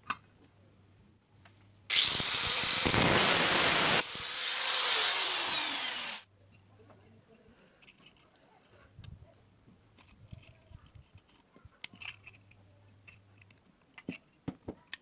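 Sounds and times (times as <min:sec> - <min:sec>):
angle grinder whine: 0:01.9 - 0:06.2
grinder disc grinding metal: 0:01.9 - 0:06.2.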